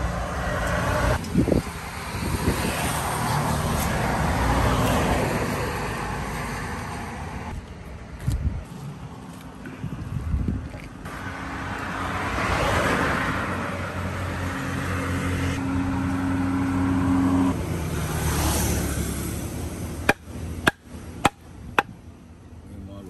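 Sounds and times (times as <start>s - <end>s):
vehicle passing on road: 0.0s - 22.7s.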